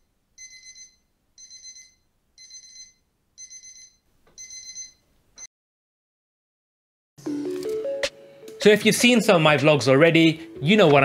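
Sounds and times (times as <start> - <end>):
smartphone alarm trilling beep: 0.0 - 5.0.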